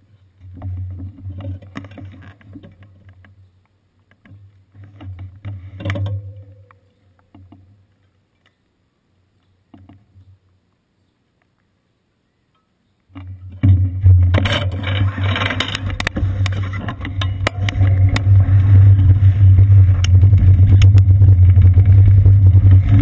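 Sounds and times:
knocks and clicks: 13.6s - 23.0s.

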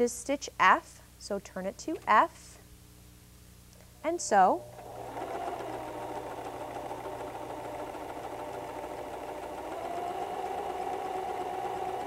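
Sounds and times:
electric sewing machine running: 4.8s - 12.0s.

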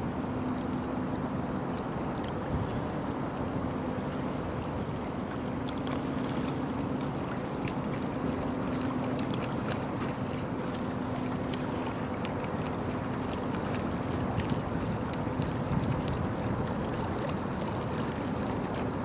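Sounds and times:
wind on microphone: 14.3s - 17.0s.

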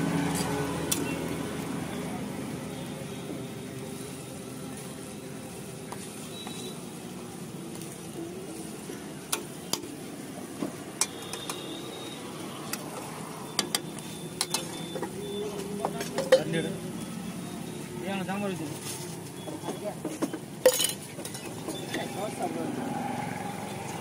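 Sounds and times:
food sizzling on griddle: 0.0s - 24.0s
metal spatula scraping griddle: 0.1s - 1.2s.

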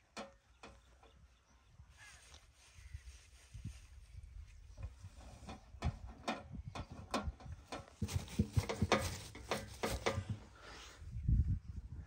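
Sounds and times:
leaves rustling and crackling: 1.9s - 4.6s.

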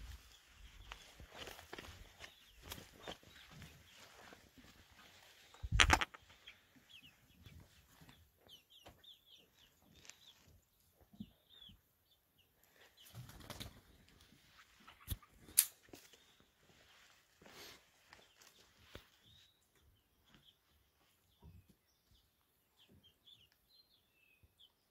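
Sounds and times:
chicks cheeping: 0.0s - 16.6s, 17.5s - 24.9s
sharp clicks: 5.7s - 6.2s.

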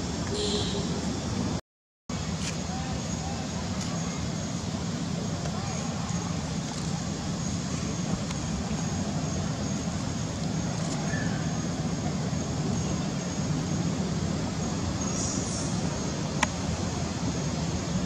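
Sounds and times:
faint high tone: 0.3s - 1.1s.

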